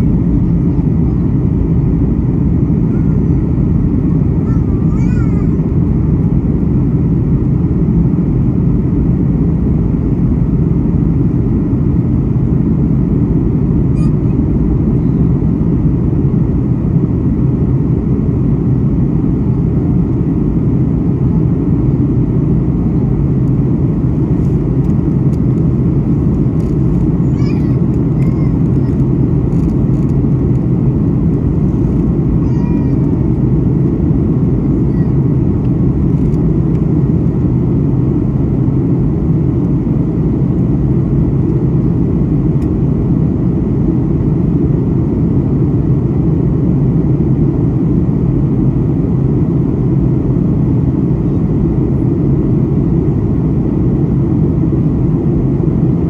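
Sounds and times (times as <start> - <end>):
jet engines in cabin: 0.0 - 56.0.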